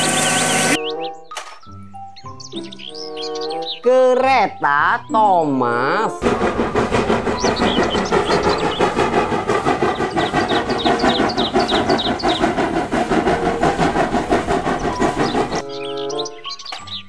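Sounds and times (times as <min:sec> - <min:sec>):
steam locomotive chuffing: 0:00.0 - 0:00.8, 0:06.2 - 0:15.6.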